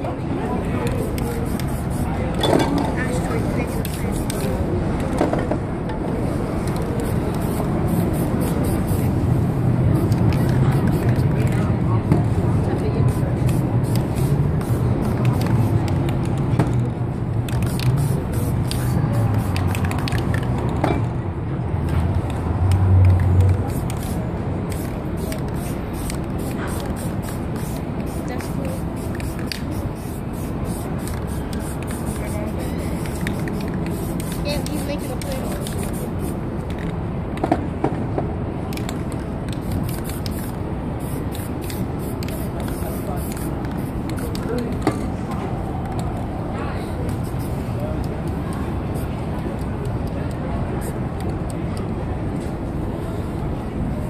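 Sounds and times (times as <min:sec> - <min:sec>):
low rumble of city traffic: 0:00.0 - 0:54.0
spray paint hissing: 0:00.6 - 0:02.4, 0:03.0 - 0:05.1, 0:06.2 - 0:20.6, 0:22.2 - 0:37.0, 0:38.7 - 0:51.6
spray can clicks: 0:17.5 - 0:20.5.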